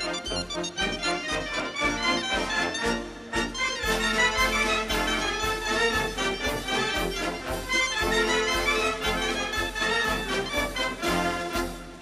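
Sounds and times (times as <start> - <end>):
wind instruments playing: 0.0 - 12.0
steady drum beat: 3.5 - 12.0.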